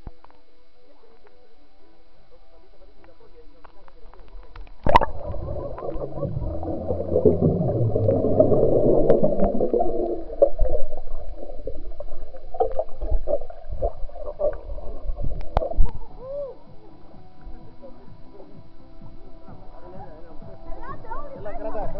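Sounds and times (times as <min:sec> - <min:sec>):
muffled underwater water churning: 0:04.2 - 0:18.5
underwater knocks: 0:04.8 - 0:16.0.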